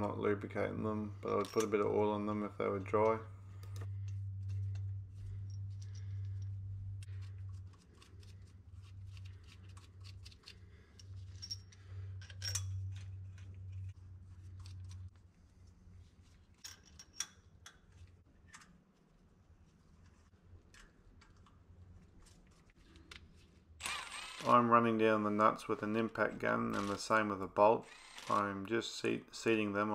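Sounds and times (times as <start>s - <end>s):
low steady hum: 0.0s - 29.9s
metallic clicks of bolts and nuts: 10.2s - 13.1s, 16.6s - 18.7s.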